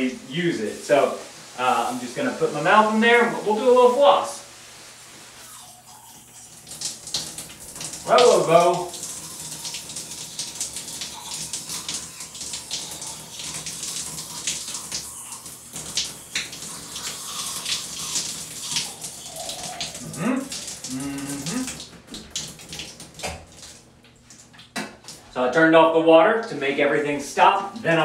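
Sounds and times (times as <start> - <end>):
water spray hissing: 0.0 - 21.8.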